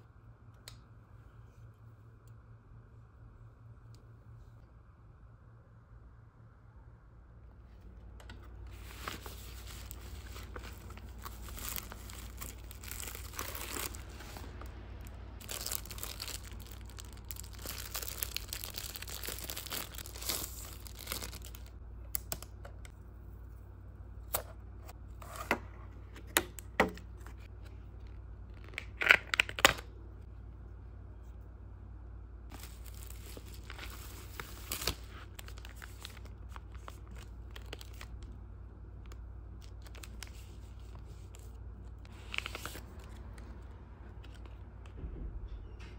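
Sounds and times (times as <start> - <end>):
plastic packaging crinkling and tearing: 8.6 - 22.5, 28.5 - 29.9, 32.5 - 38.4, 39.0 - 43.6.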